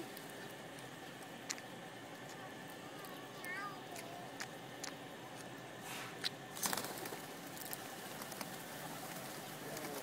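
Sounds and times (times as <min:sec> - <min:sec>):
pigeon wings flapping: 0:06.5 - 0:10.0.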